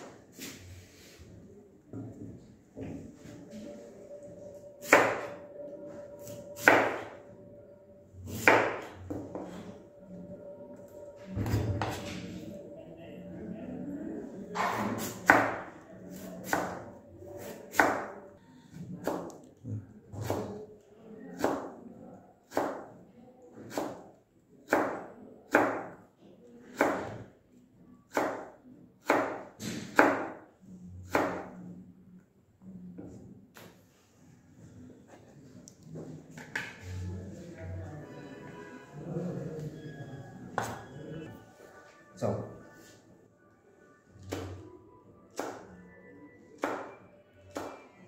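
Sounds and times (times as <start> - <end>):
knife chopping on cutting board: 8.3 - 9.4.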